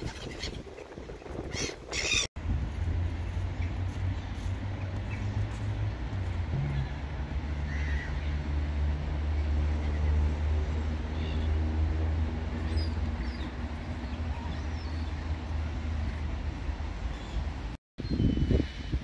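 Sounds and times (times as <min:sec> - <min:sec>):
vehicle engine humming: 0:02.4 - 0:17.8
city traffic noise: 0:02.4 - 0:19.0.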